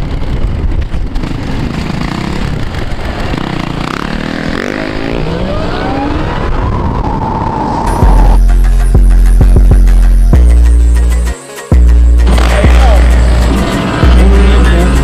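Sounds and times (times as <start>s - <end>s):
road and wind noise: 0.0s - 10.9s, 12.0s - 15.0s
dirt bike engine revving: 1.2s - 6.5s, 12.2s - 15.0s.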